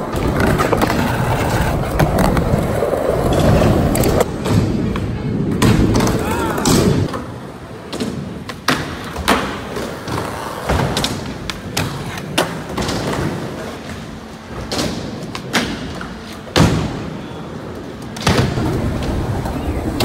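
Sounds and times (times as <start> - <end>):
skateboard wheels rolling: 0.0 - 20.0.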